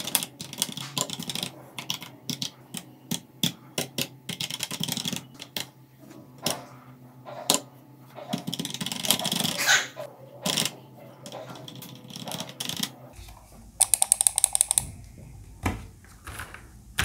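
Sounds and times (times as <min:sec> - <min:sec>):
mechanical keyboard key strokes: 0:13.8 - 0:14.8.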